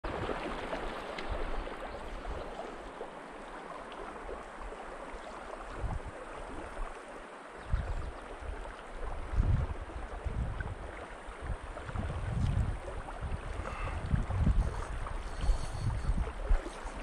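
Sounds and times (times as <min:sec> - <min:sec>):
stream flowing over cobbles: 0:00.0 - 0:17.0.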